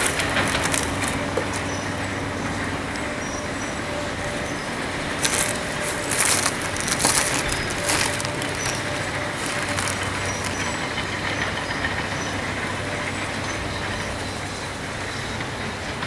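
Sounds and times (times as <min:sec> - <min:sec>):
crunching knocks: 0:00.0 - 0:02.0, 0:04.2 - 0:11.1
demolition machinery humming: 0:00.0 - 0:16.0.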